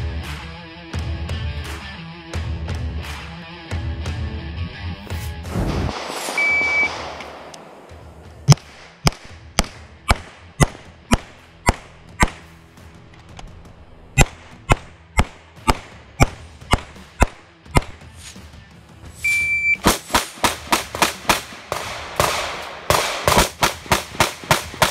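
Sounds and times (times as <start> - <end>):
pistol shots: 5.6 - 12.5, 14.2 - 18.0, 19.8 - 24.9
shot timer beep: 6.4 - 6.9, 19.2 - 19.8.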